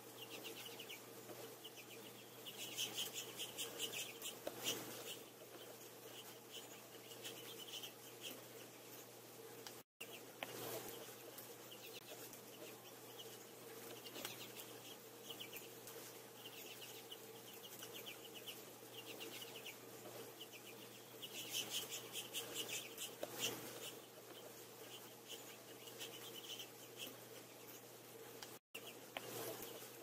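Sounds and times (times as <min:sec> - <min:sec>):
faint low hum: 0:00.0 - 0:30.0
finches twittering: 0:01.6 - 0:08.4.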